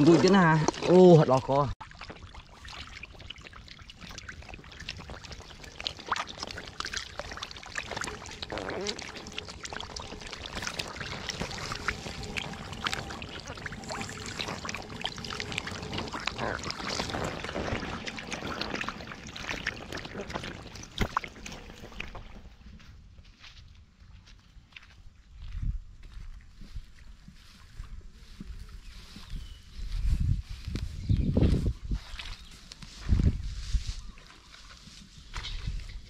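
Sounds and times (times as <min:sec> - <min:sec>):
muddy water sloshing and splashing: 0:00.0 - 0:22.9, 0:31.5 - 0:36.0.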